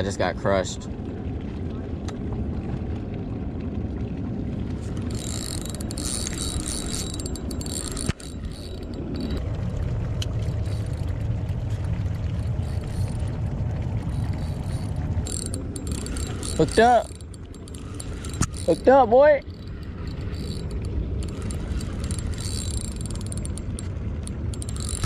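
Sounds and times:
steady low rumble: 0.0 - 25.0
fishing reel whirring: 4.8 - 9.4, 10.4 - 11.2, 12.4 - 13.4, 14.0 - 25.0.

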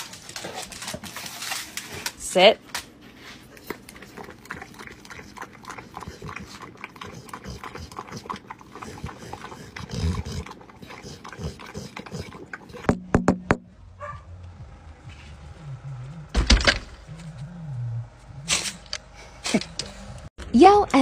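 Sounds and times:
dog lapping: 3.5 - 12.9.

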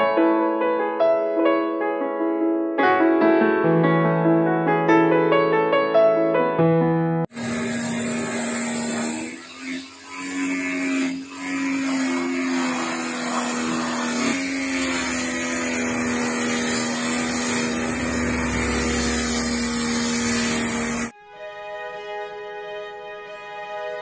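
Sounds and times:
pressure washer running: 7.3 - 21.1.

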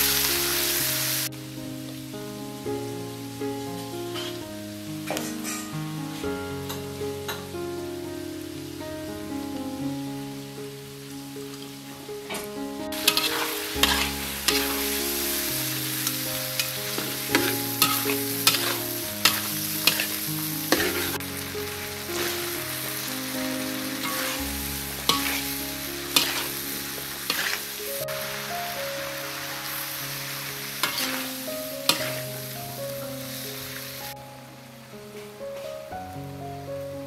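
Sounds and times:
food sizzling in a wok: 0.0 - 7.5, 12.9 - 34.2
spatula scraping and clinking wok: 4.2 - 4.4, 12.9 - 23.1, 23.7 - 27.8, 30.7 - 32.5.

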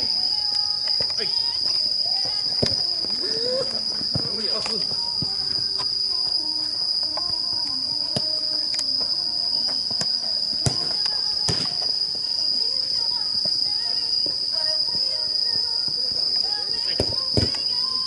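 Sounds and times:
ball kicked thuds: 2.2 - 2.9, 4.0 - 5.4, 9.9 - 11.9
faint shouts of players: 3.2 - 3.9.

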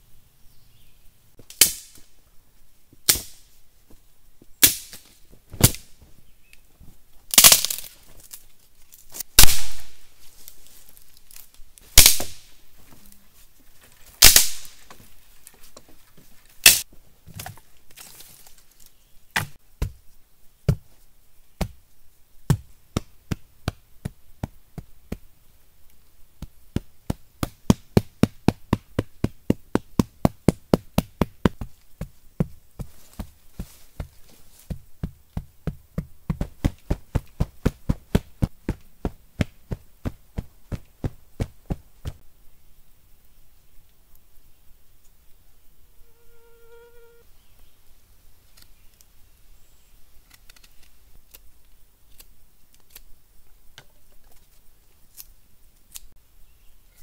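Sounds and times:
wooden branch cracking against wood: 7.3 - 12.5, 13.8 - 19.9.

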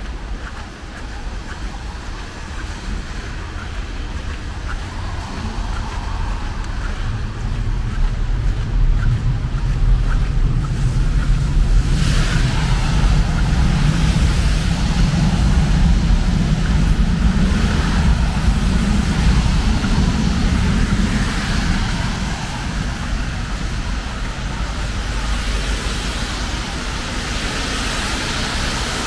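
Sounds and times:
wind rumble on microphone: 0.0 - 29.0
tyre hiss on wet road: 11.8 - 29.0.

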